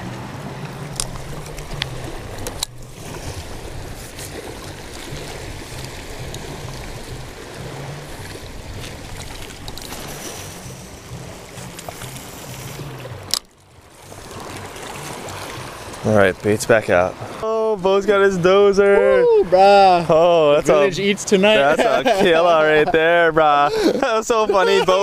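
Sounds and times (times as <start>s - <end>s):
wind buffeting microphone: 0.0s - 13.3s
ocean surf on shore: 0.0s - 25.0s.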